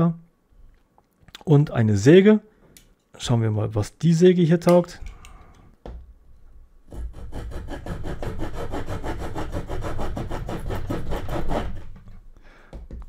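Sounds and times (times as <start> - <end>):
saw cutting wooden branch: 6.9 - 12.0.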